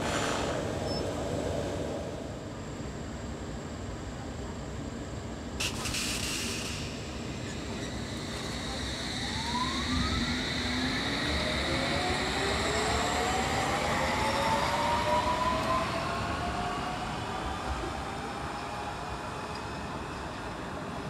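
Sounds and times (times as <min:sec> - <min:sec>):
train traction motors whining: 0:07.0 - 0:20.9.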